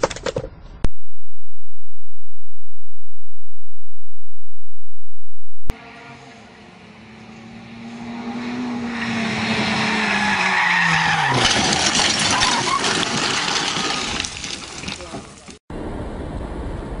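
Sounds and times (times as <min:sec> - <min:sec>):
rally car engine approaching: 0:05.7 - 0:10.6
crashing and clattering debris: 0:11.3 - 0:15.6.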